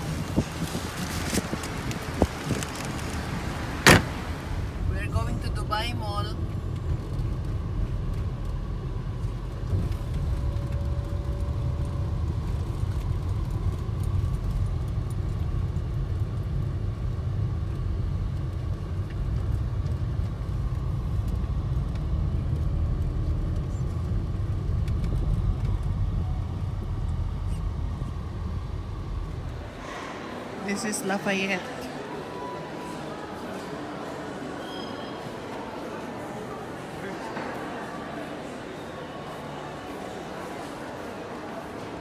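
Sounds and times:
car road and engine rumble: 0.0 - 32.3.

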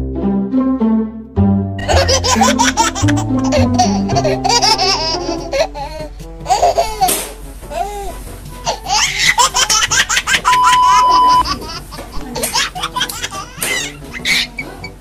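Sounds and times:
background music: 0.0 - 15.0
high-pitched laughter: 1.8 - 5.8
steady beep: 10.6 - 11.5.

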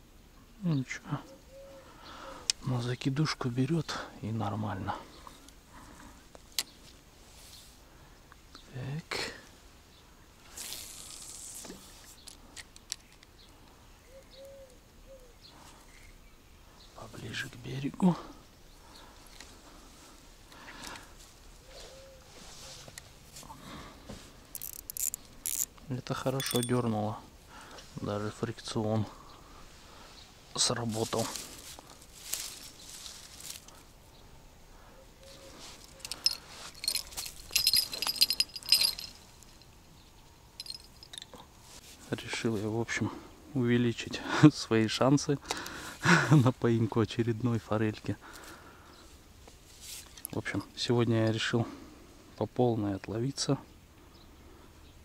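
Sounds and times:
bird cooing: 1.3 - 2.3, 14.0 - 15.5, 21.7 - 22.3
metallic jingling and clicking: 24.5 - 27.0, 35.8 - 39.8, 40.6 - 41.4.

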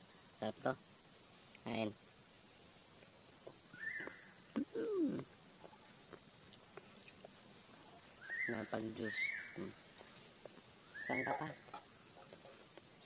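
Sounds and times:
high-pitched insect drone: 0.0 - 7.2, 8.1 - 12.2
short voice-like sounds: 4.6 - 5.2.

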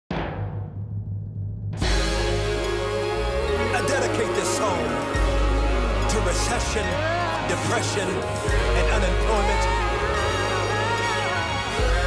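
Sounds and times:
fuller music: 1.5 - 12.0.

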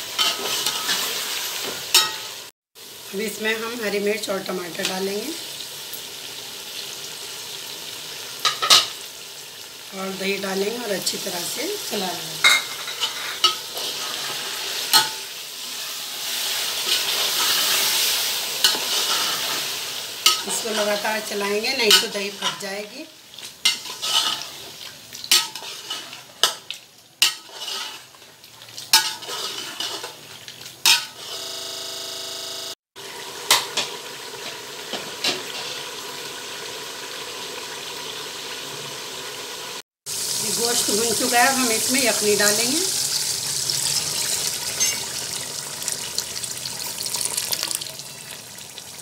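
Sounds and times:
light sizzle of frying: 0.0 - 31.5, 32.6 - 49.0
metal spoon scraping a pot: 23.7 - 24.6, 27.2 - 28.1, 28.9 - 30.1
liquid pouring into a pot: 43.1 - 49.0
spoon clinking on pot: 44.8 - 45.1.

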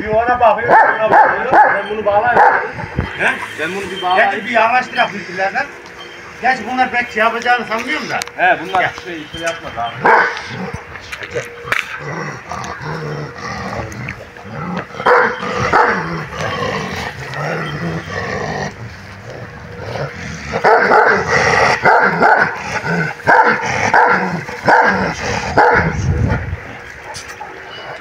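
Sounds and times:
large dogs barking: 0.6 - 3.9, 9.5 - 28.0.

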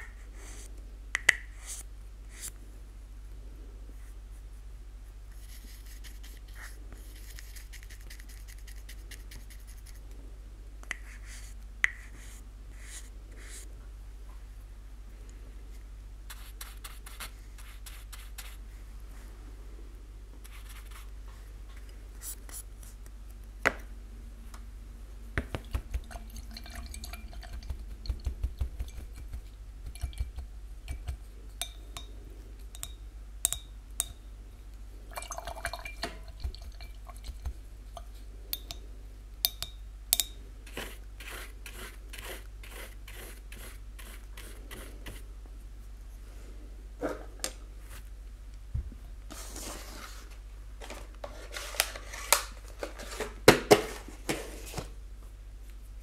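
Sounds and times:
steady low hum: 0.0 - 51.9
brush scratching plastic cup: 5.4 - 10.0, 20.5 - 21.1, 27.3 - 31.2, 40.7 - 45.2
brush tapping glass jar: 25.4 - 34.2, 35.1 - 38.8, 39.4 - 40.9.

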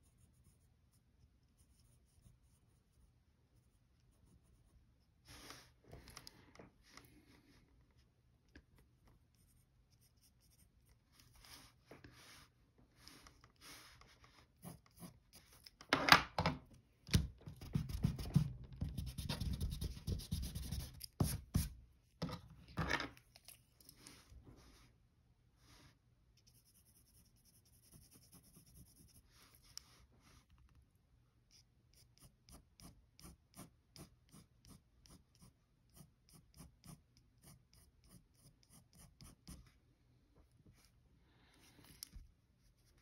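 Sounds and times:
pencil scratching on paper: 0.0 - 5.7, 9.3 - 15.8, 17.6 - 21.8, 26.4 - 30.0, 31.5 - 39.8.

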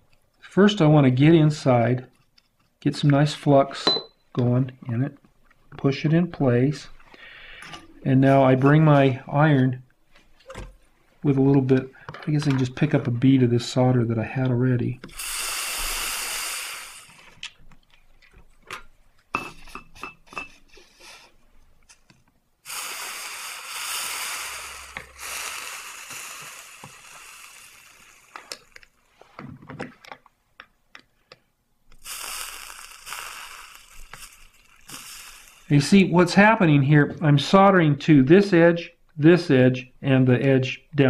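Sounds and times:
flux sizzling under soldering iron: 15.1 - 17.4, 22.6 - 29.0, 31.9 - 35.9.

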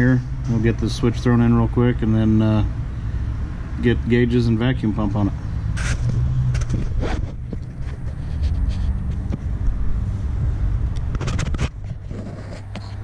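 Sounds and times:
steady low rumble: 0.0 - 13.0
camera handling knocks and scrapes: 5.8 - 9.5, 11.0 - 13.0.

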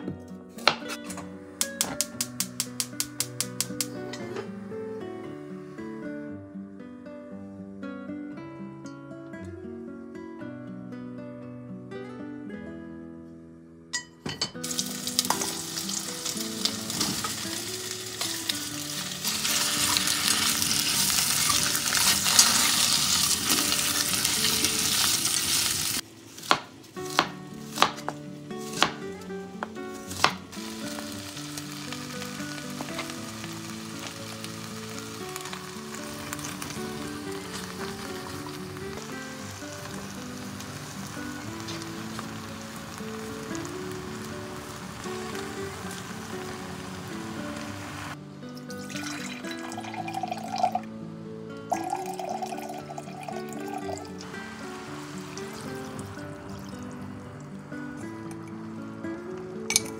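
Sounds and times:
knife chopping onion on board: 0.6 - 1.0, 26.5 - 29.0
meat sizzling in oil: 14.6 - 27.9, 29.9 - 50.3, 53.0 - 57.4.

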